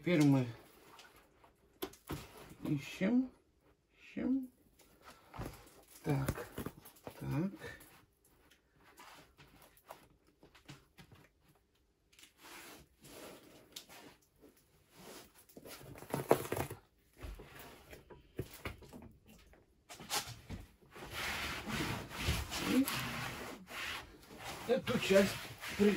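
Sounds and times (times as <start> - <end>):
sheet rustling: 20.0 - 25.9.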